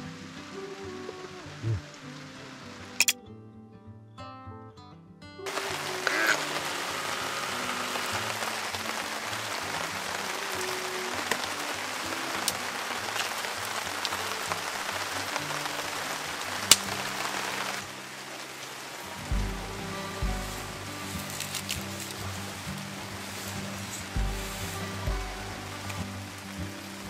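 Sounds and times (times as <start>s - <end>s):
steady rain falling: 0.0s - 3.1s, 5.5s - 27.0s
soft background music: 5.4s - 27.0s
sharp raindrop strikes: 5.5s - 27.0s.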